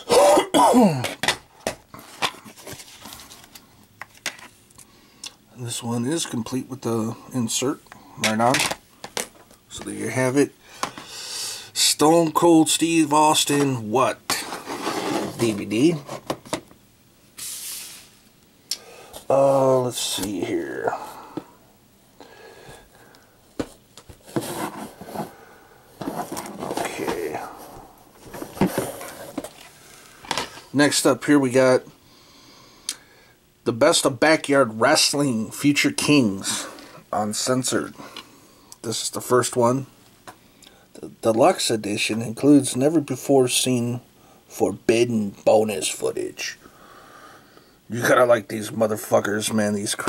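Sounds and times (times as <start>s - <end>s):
plastic cases rubbing and rustling: 14.3s - 16.7s, 23.6s - 25.4s, 26.0s - 30.7s.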